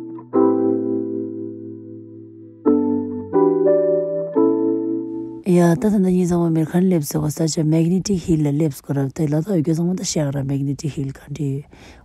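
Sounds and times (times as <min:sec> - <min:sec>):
slow piano chords: 0:00.0 - 0:06.4.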